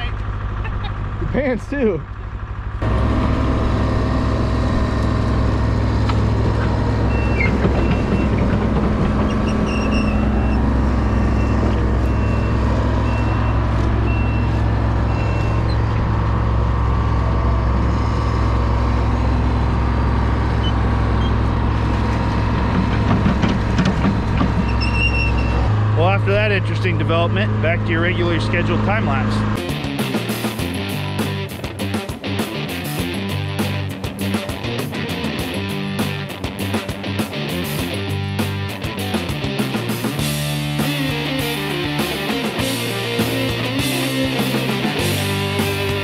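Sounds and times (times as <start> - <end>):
heavy machine engine running: 0.0 - 46.0
reversing alarm beeps: 7.0 - 8.4, 9.5 - 16.0.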